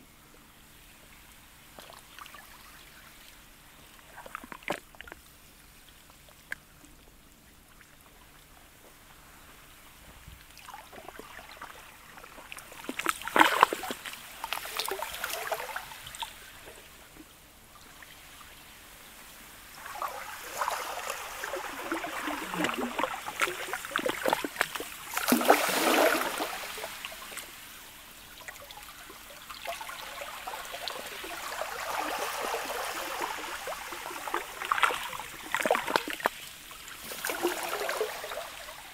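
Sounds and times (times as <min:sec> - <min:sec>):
ice crackling against shore: 0:10.5 - 0:16.9, 0:19.8 - 0:27.7.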